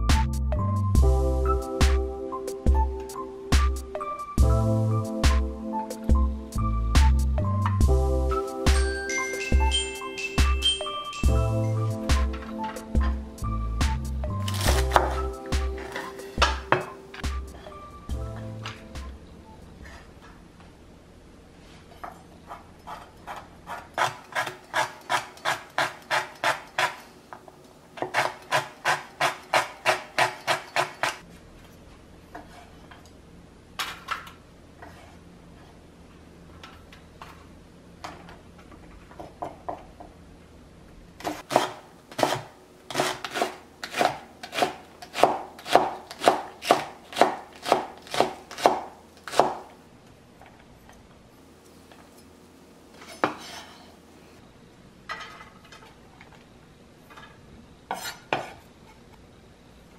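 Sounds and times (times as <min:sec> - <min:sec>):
knife chopping on wooden board: 0:14.5 - 0:17.4, 0:22.5 - 0:27.0, 0:28.0 - 0:31.2, 0:41.2 - 0:49.7.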